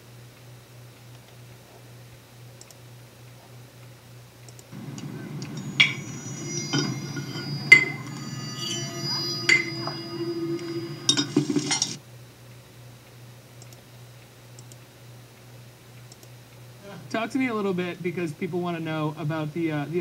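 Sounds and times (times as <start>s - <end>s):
steady low hum: 4.7s - 12.0s
spoon clinking ceramic bowl: 5.2s - 12.0s.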